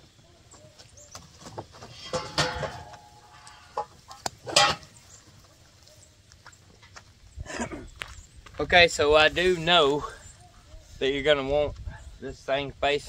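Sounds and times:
scraping: 1.3s - 5.1s.

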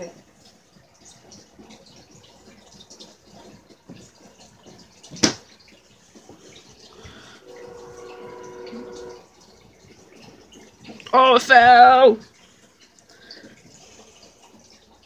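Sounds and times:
multi-tone hum: 6.9s - 10.7s.

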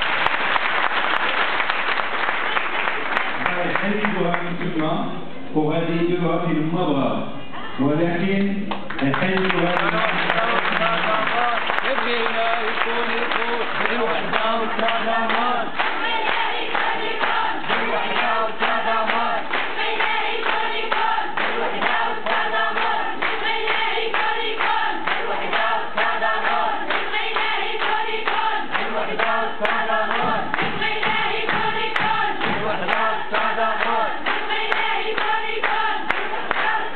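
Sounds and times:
rhythmic hand-clapping: 0.0s - 4.8s, 8.7s - 36.9s
crowd of women chanting: 13.6s - 36.9s.

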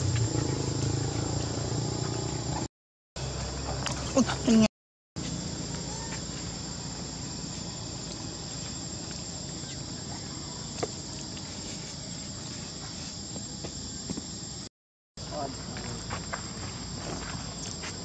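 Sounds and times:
insect chorus drone: 0.0s - 18.0s.

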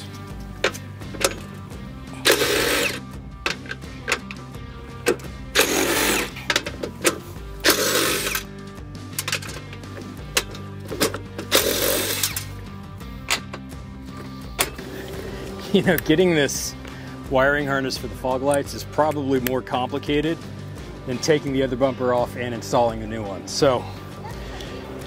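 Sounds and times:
background music: 0.0s - 25.0s
cordless drill drilling plastic: 2.2s - 3.0s, 5.6s - 6.3s, 7.6s - 8.5s, 11.5s - 12.4s.

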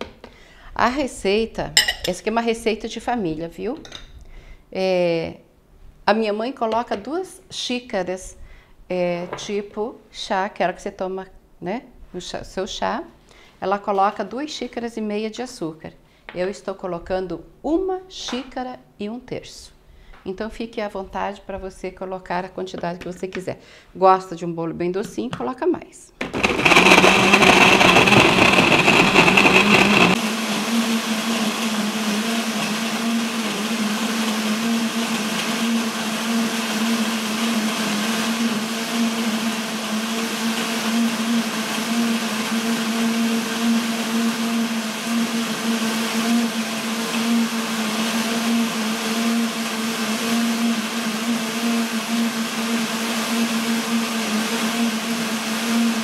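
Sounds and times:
blender running: 26.2s - 56.0s.

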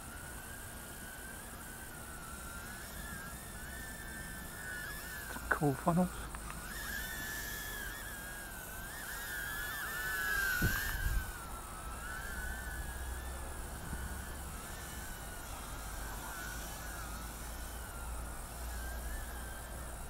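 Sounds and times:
quadcopter motors whining: 0.0s - 20.0s.

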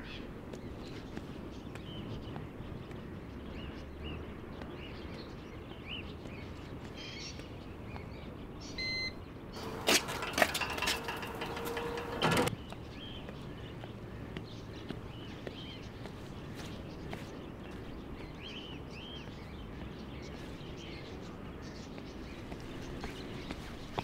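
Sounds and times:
small birds chirping: 0.0s - 24.0s
electronic beep: 8.8s - 9.2s
metal turnstile clicking and clanking: 9.6s - 12.5s.

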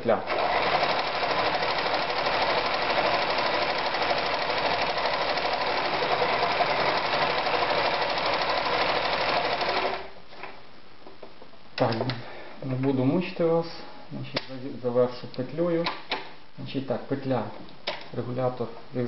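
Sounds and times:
electric sewing machine running: 0.3s - 10.1s.

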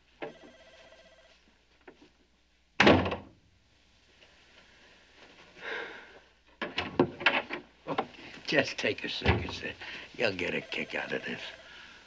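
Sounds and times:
wooden door shutting thud: 2.8s - 3.3s, 9.2s - 9.6s.

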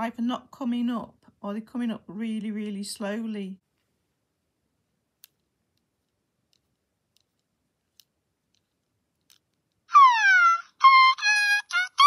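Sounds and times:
small plastic clicks: 5.2s - 9.9s
electronic toy bird chirp: 9.9s - 12.0s.

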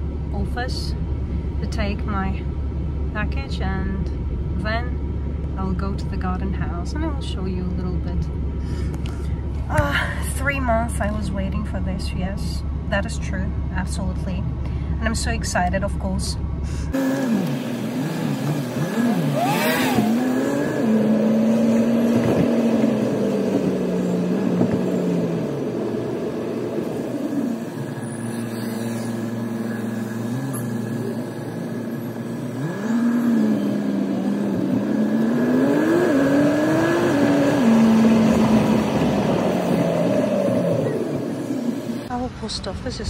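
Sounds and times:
road noise inside car: 0.0s - 43.0s
car engine accelerating: 16.9s - 42.1s.

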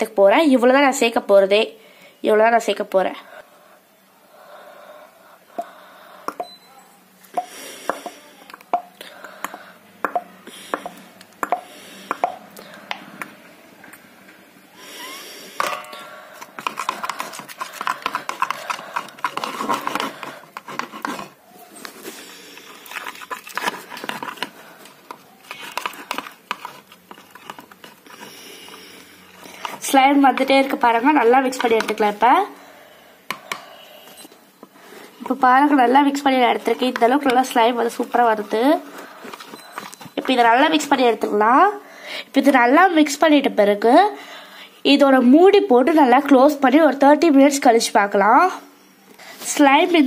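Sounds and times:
spoon stirring sticky slime: 15.8s - 32.5s, 35.2s - 41.4s
clicks and scrapes: 16.4s - 28.8s.

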